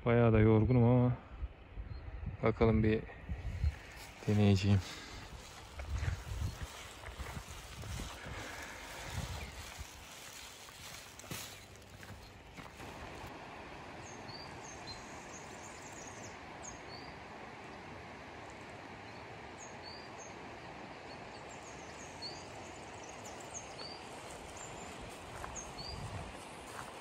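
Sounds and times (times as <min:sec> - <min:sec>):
footsteps on gravel: 0:03.7 - 0:13.3, 0:23.8 - 0:27.0
mountain stream rushing: 0:03.8 - 0:27.0.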